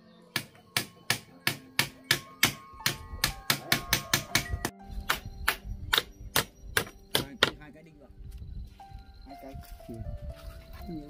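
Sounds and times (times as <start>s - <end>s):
hammer driving nails: 0.3s - 7.6s.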